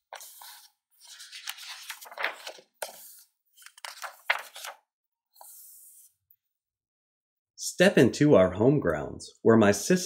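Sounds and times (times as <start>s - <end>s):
book pages turning: 0.0s - 6.1s.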